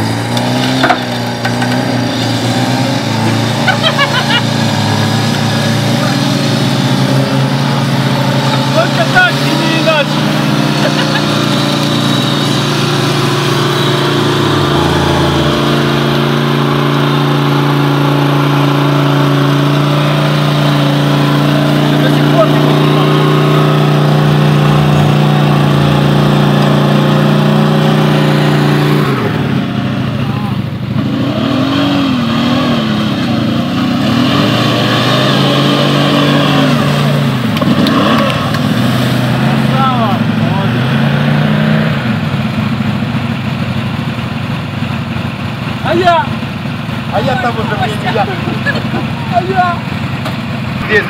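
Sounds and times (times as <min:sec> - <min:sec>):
atv engine running: 0:00.0 - 0:31.3, 0:42.0 - 0:51.0.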